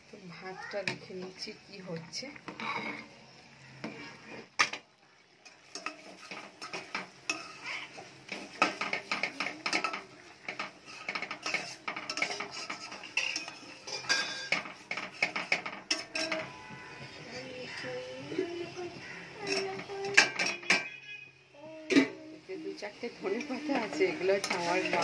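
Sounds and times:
metal spoon scraping cooking pot: 5.4 - 17.1, 23.3 - 25.0.

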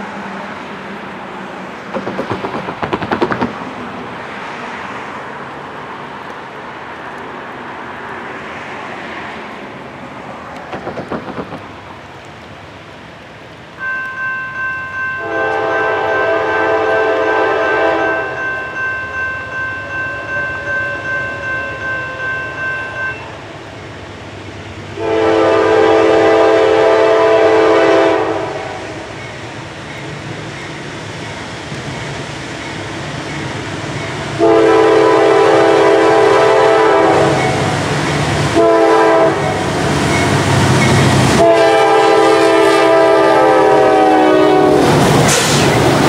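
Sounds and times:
locomotive rumble: 0.0 - 14.2, 15.2 - 46.0
locomotive bell ringing: 13.8 - 23.9, 37.2 - 38.3, 40.0 - 41.1
locomotive air horn blasts: 15.2 - 18.4, 25.0 - 29.1, 34.4 - 37.7, 38.5 - 39.6, 41.4 - 44.8.

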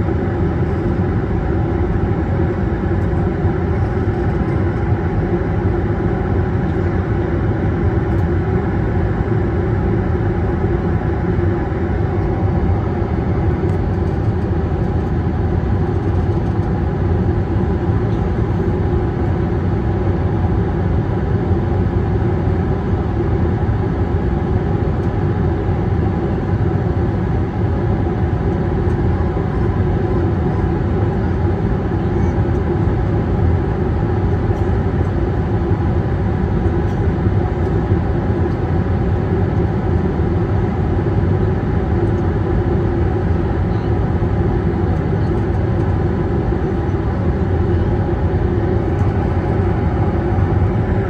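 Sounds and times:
airplane cabin engine drone: 0.0 - 51.0
low hum tones: 32.9 - 51.0.

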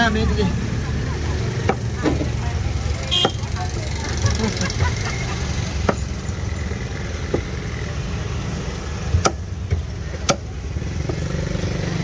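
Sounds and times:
cleaver chopping on wooden block: 3.2 - 3.4, 9.1 - 10.5.

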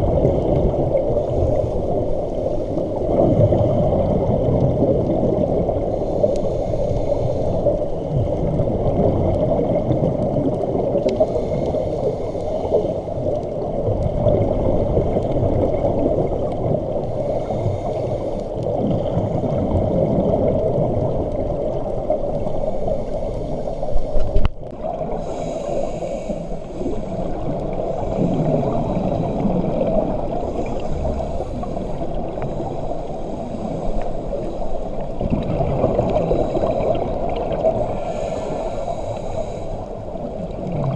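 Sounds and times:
muffled underwater noise: 0.0 - 40.9
diver regulator breaths: 1.0 - 3.8, 5.8 - 8.4, 10.9 - 13.5, 16.9 - 19.9, 22.2 - 40.5
exhaled bubbles: 2.9 - 6.0, 7.8 - 11.7, 12.7 - 18.0, 18.6 - 22.3, 24.2 - 40.9.

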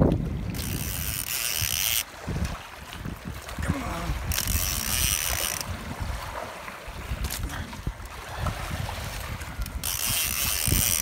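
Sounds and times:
fishing reel ratcheting: 0.0 - 2.1, 4.3 - 5.8, 9.6 - 11.0
wind rumble on microphone: 0.0 - 11.0.

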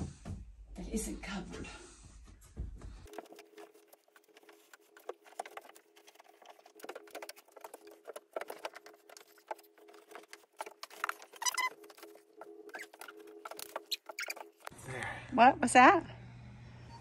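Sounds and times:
insulation rustling and crackling: 2.9 - 14.7.

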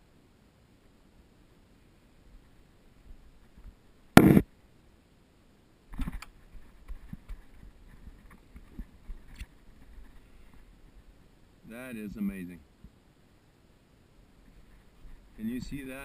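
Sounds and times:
short loud noise burst: 4.2 - 4.5.

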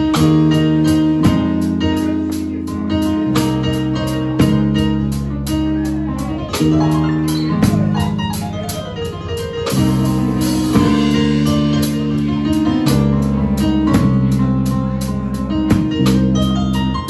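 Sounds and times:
drums: 0.0 - 17.0
electric bass: 0.0 - 17.0
stage piano chords: 0.0 - 17.0.

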